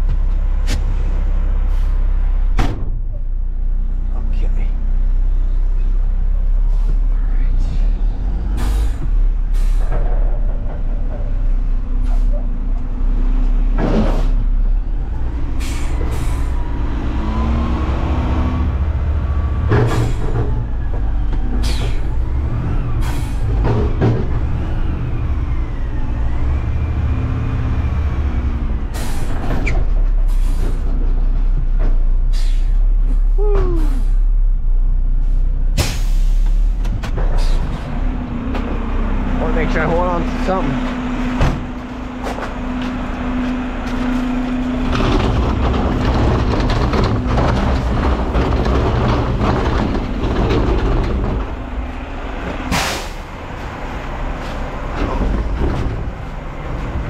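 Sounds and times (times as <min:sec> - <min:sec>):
garbage truck diesel engine: 0:00.0 - 0:57.0.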